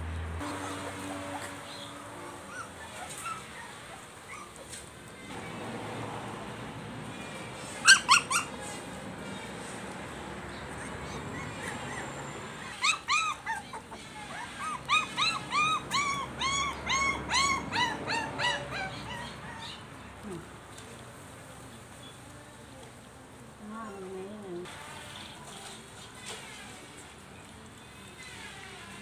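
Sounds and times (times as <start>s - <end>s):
puppies yelping: 0.4s - 5.3s, 7.7s - 8.9s, 10.5s - 20.0s.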